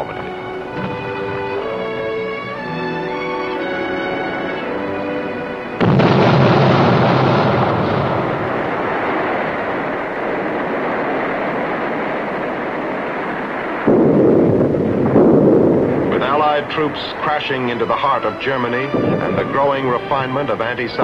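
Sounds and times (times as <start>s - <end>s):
orchestral music: 0.0s - 8.5s, 16.1s - 21.0s.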